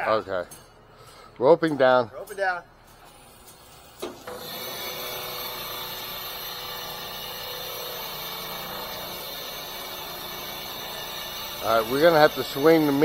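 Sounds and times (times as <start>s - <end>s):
hydraulic winch running: 3.1s - 13.0s.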